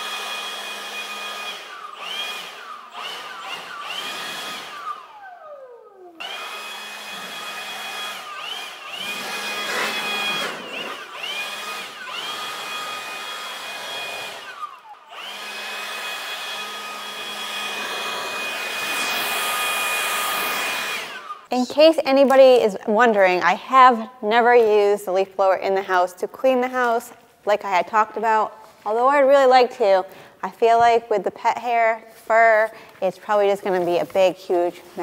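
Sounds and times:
leaf blower motor whine: 0:00.0 - 0:21.5.

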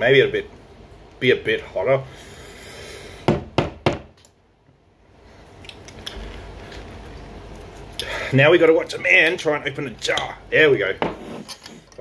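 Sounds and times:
sharp knocks: 0:03.3 - 0:04.1.

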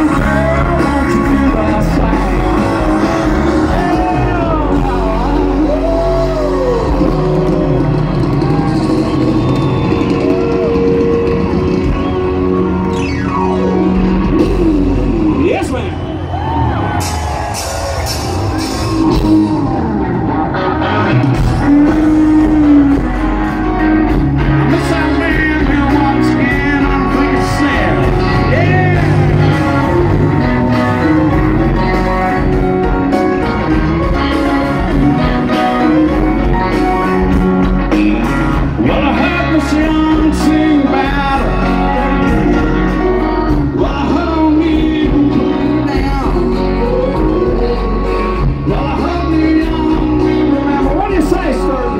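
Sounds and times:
person singing: 0:00.0 - 0:08.8, 0:20.8 - 0:23.8, 0:24.4 - 0:32.2, 0:33.4 - 0:51.9
rock band playing: 0:00.0 - 0:51.9.

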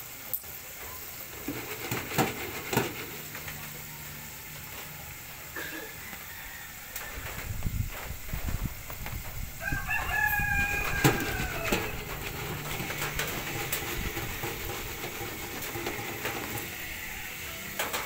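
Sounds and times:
oil sizzling in deep fryer: 0:00.0 - 0:18.0
rooster crowing: 0:03.0 - 0:08.0, 0:09.6 - 0:17.9.

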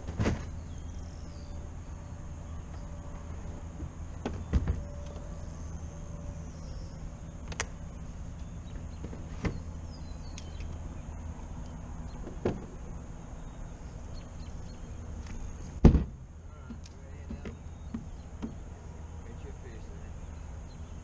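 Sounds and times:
electric trolling motor humming: 0:00.5 - 0:21.0
knocks on boat deck: 0:15.8 - 0:16.2.

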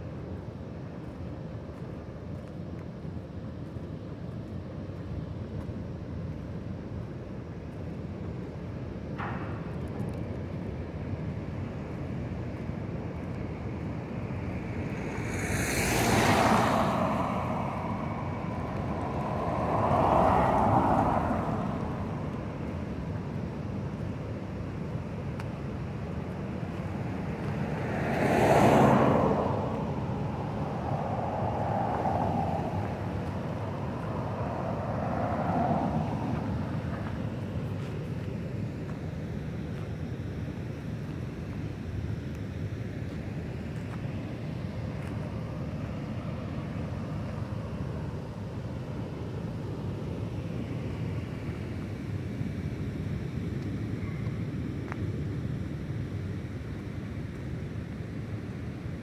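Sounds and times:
traffic rumble: 0:00.0 - 0:59.0
vehicles passing: 0:08.7 - 0:57.2.

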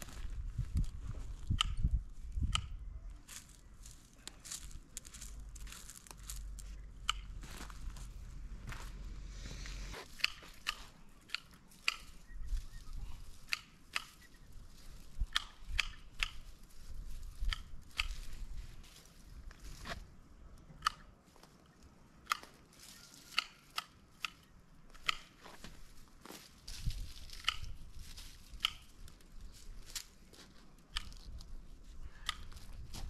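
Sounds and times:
pruning shears snipping: 0:10.0 - 0:12.2, 0:13.4 - 0:14.3, 0:15.2 - 0:16.5, 0:17.4 - 0:18.3, 0:23.2 - 0:25.4, 0:27.2 - 0:29.2, 0:30.9 - 0:31.4.

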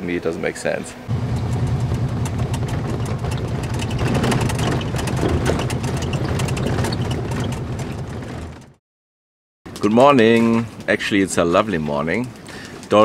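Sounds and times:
buggy engine droning: 0:01.1 - 0:08.8
small rattles and knocks: 0:01.3 - 0:08.8.

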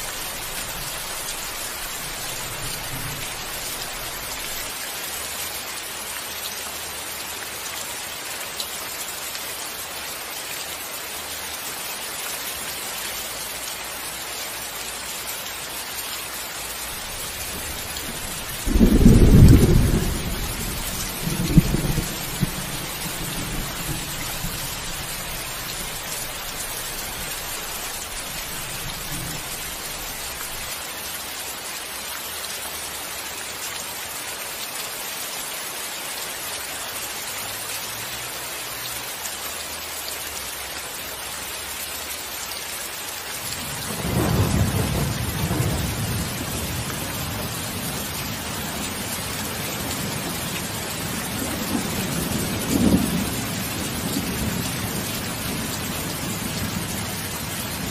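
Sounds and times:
steady rain hiss: 0:00.0 - 0:57.9
thunder: 0:17.5 - 0:24.8.

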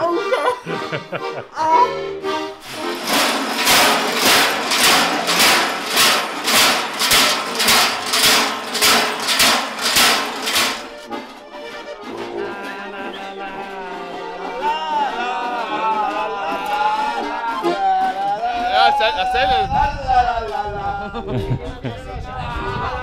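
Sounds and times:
large bells clanging: 0:02.6 - 0:13.0
music with singing: 0:11.8 - 0:23.0.

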